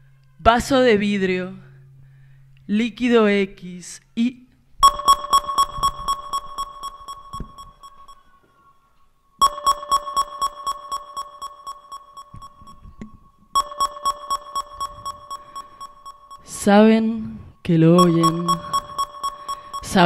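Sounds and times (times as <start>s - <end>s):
steady high electronic tone: 4.8s - 8.2s, 9.4s - 17.0s, 17.8s - 20.0s
electronic pulsed beeping: 4.8s - 8.3s, 9.4s - 17.0s, 17.8s - 20.0s.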